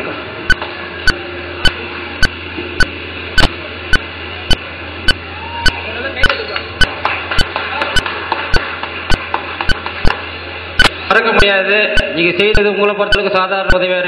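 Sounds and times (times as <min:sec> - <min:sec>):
steady low hum: 0:00.0 - 0:14.0
sharp repeating clicks: 0:00.5 - 0:05.2, 0:06.2 - 0:10.2, 0:10.8 - 0:11.0, 0:11.9 - 0:13.9.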